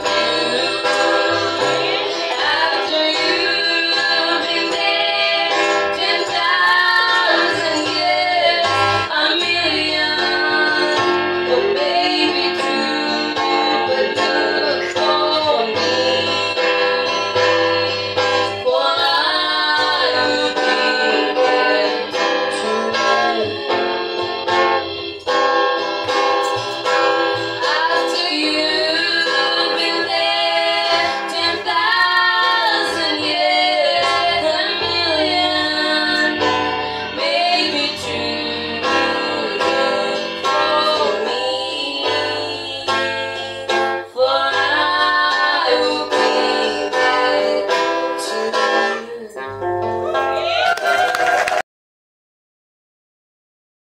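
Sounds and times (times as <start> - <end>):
girls singing gospel song: 0.0 - 25.3, 26.5 - 49.2
acoustic guitar: 0.0 - 51.6.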